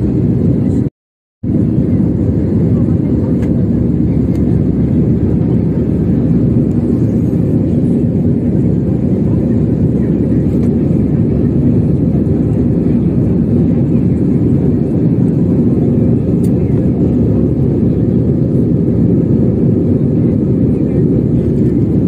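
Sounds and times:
airliner cabin roar: 0.0 - 22.0.

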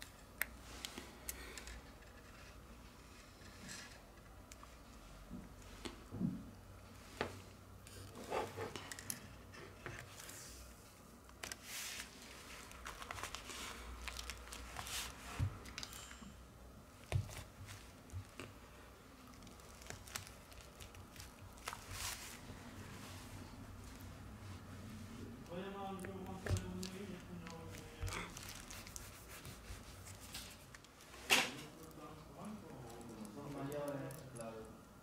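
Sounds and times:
plastic bag crinkling: 12.5 - 16.0, 19.2 - 22.4, 26.3 - 29.4.

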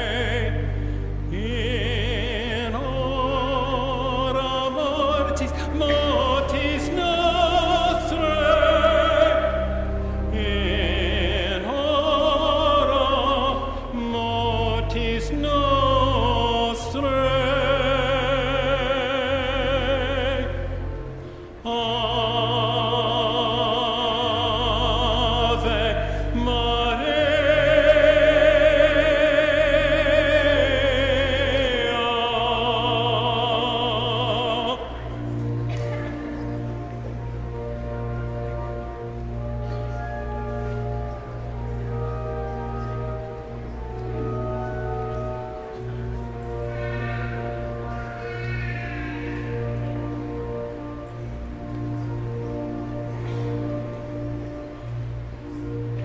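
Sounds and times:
long held low notes: 0.0 - 56.0
person singing with vibrato: 0.0 - 56.0.

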